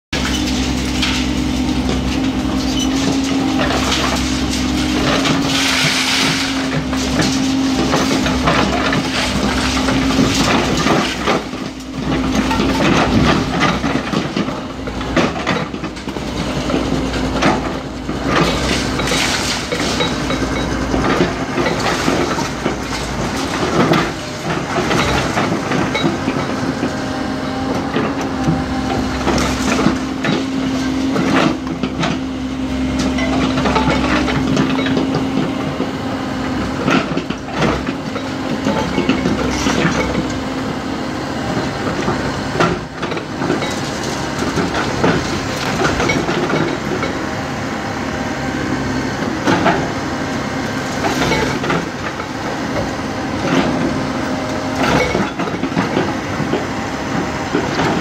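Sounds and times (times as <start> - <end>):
excavator running: 0.0 - 58.0
concrete crunching and breaking: 0.2 - 26.9.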